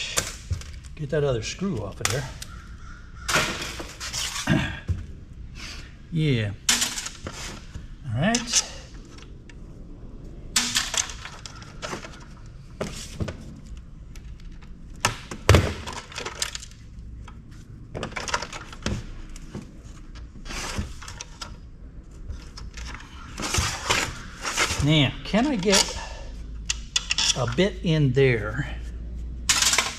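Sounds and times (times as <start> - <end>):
pliers clicking and scraping: 22.5 - 27.7.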